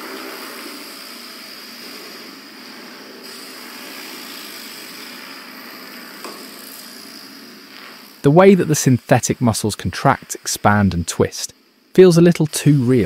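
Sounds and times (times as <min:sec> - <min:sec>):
robot hydraulic whirring and hissing: 0:00.0 - 0:10.6.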